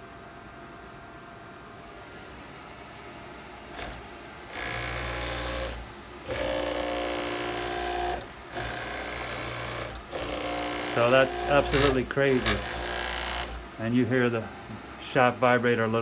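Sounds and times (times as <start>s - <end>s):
servo motor whine: 3.7s - 13.7s.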